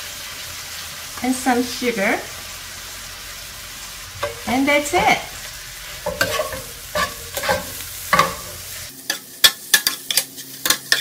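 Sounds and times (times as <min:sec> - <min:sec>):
food sizzling: 0:00.0 - 0:11.0
spatula scraping a skillet: 0:04.2 - 0:11.0.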